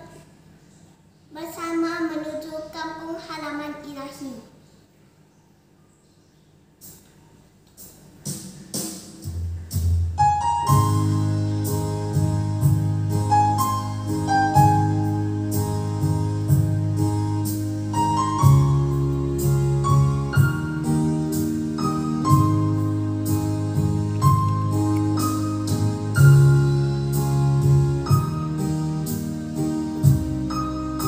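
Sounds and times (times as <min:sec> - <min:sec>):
electronic keyboard song: 0:06.8 - 0:31.0.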